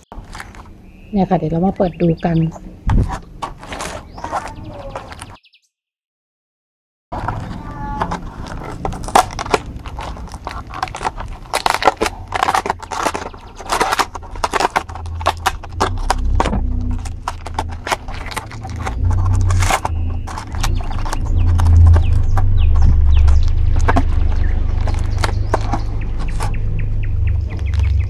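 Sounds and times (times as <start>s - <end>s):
plastic container crackling: 0.0s - 0.8s, 2.9s - 5.4s, 7.2s - 28.0s
low rumble: 8.4s - 28.0s.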